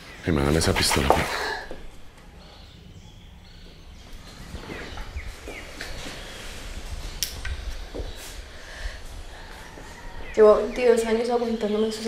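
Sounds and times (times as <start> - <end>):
bird chirps: 9.4 - 12.0.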